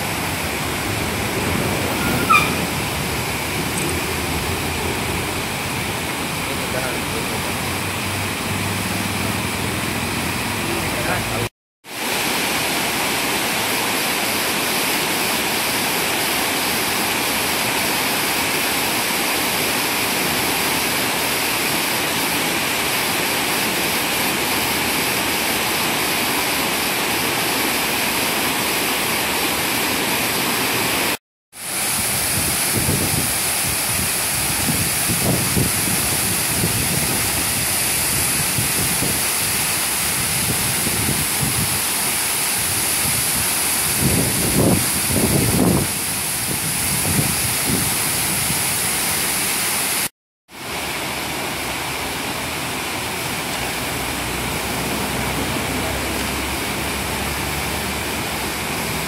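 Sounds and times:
water rushing over rocks: 0.0 - 59.0
wind buffeting microphone: 32.0 - 39.3, 43.0 - 48.6.

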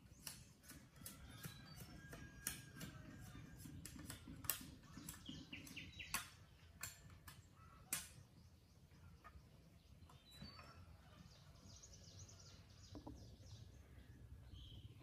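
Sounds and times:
bamboo poles clacking together: 0.0 - 8.3
birds chirping: 0.0 - 15.0.

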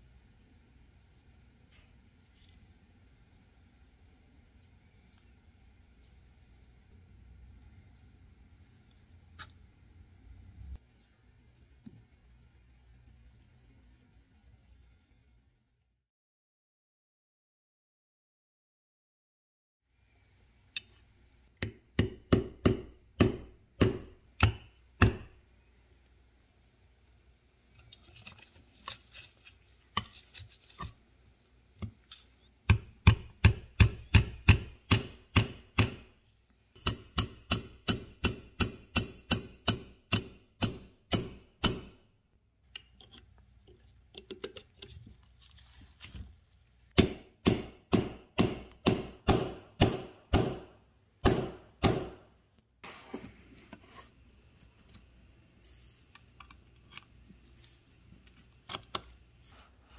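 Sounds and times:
hammer peening on metal: 36.8 - 42.0.

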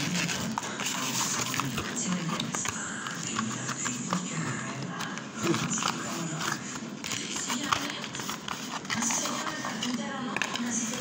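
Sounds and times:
cardboard packaging rustling: 0.0 - 4.3.

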